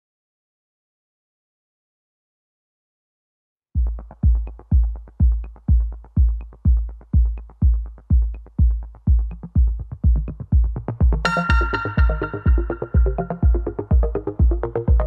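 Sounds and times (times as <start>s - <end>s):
heavy kick drum: 3.8s - 15.0s.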